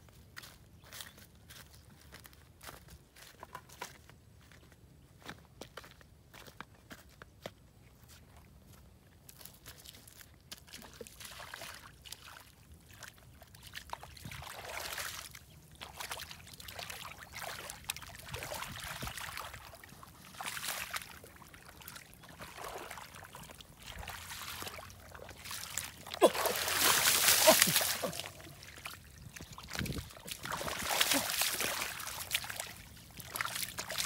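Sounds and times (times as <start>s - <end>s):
hands splashing in muddy water: 13.6s - 34.0s.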